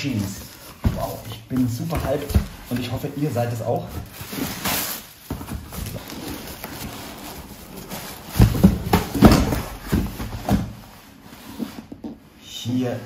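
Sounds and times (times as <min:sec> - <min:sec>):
tissue paper and cardboard rustling: 0:00.0 - 0:11.9
box scraping against carton: 0:04.0 - 0:11.9.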